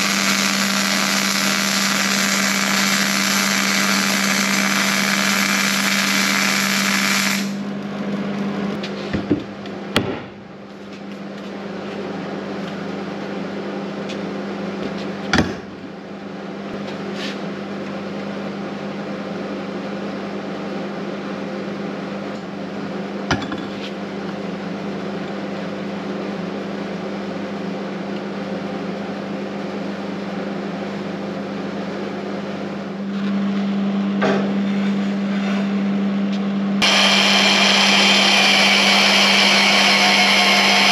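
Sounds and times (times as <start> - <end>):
welder crackling: 0.0 - 7.6
steady hum: 0.0 - 40.9.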